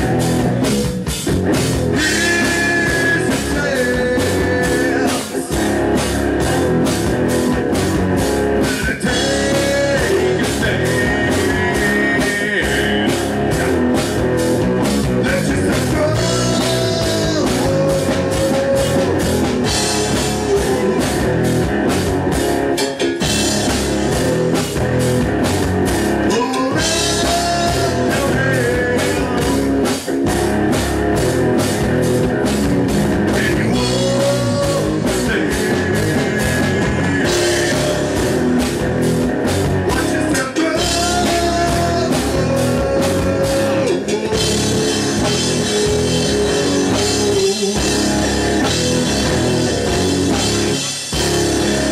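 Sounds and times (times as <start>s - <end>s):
bass guitar: 0.0s - 51.9s
drum kit beat: 0.0s - 51.9s
electric guitars: 0.0s - 51.9s
man singing: 1.9s - 7.8s, 8.5s - 21.7s, 26.2s - 30.1s, 33.1s - 38.9s, 39.7s - 50.5s.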